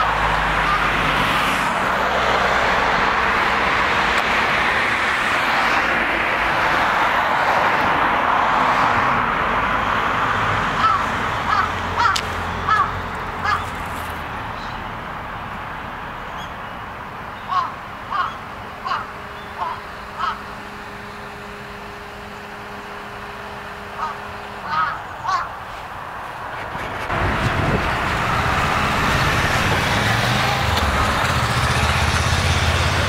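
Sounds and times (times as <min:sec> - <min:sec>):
bird cawing: 0:00.0 - 0:01.4, 0:10.7 - 0:14.9, 0:17.3 - 0:25.9
steady rushing noise: 0:16.9 - 0:33.0.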